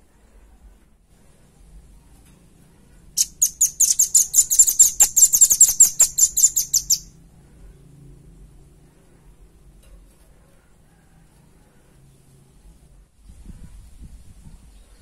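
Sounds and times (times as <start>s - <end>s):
bird calling high trill: 3.2s - 7.1s.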